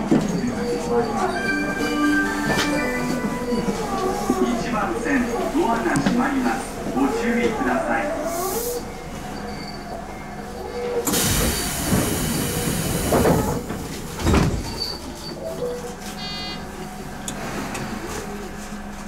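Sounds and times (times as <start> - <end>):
train doors thudding shut: 11.0 - 15.2.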